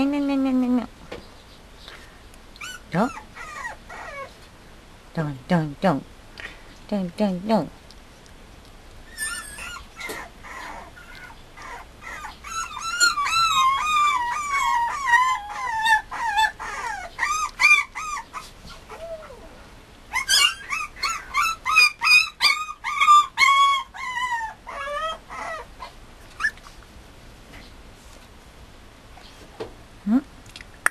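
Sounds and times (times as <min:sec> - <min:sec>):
puppy whining and whimpering: 0:02.6 - 0:04.4, 0:09.0 - 0:26.8.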